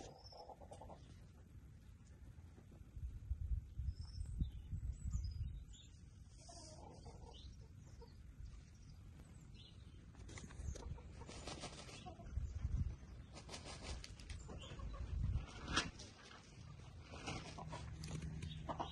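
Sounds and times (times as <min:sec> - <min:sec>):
chickens clucking softly: 0:00.0 - 0:01.5, 0:06.2 - 0:09.0, 0:10.2 - 0:18.9
rustling in dirt: 0:09.6 - 0:18.9.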